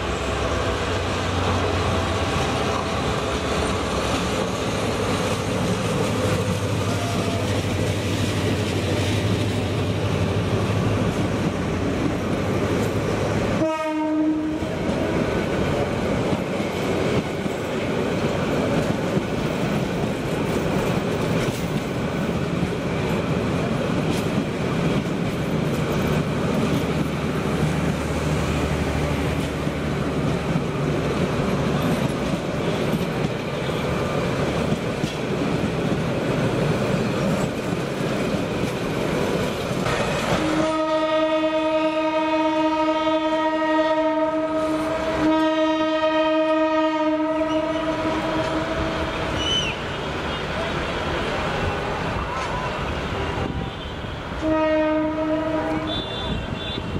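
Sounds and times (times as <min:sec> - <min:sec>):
train wheels clattering on rails: 0:00.0 - 0:13.6, 0:14.4 - 0:41.2, 0:47.4 - 0:53.7
train horn blasts: 0:13.6 - 0:14.8, 0:40.4 - 0:50.4, 0:53.2 - 0:56.9.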